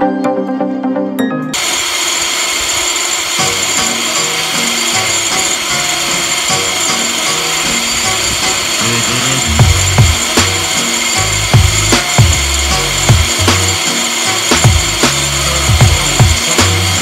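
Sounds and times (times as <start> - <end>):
rotary grinder grinding metal: 1.6 - 17.0.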